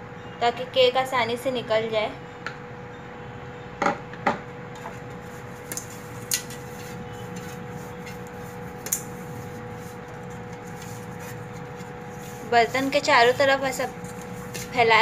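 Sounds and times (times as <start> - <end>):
steady hum: 0.0 - 15.0
fingers rubbing oil in tin: 5.1 - 15.0.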